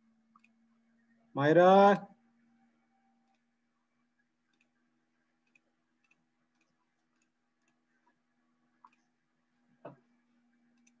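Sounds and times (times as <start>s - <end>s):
faint irregular clicks: 0.2s - 0.8s, 3.2s - 11.0s.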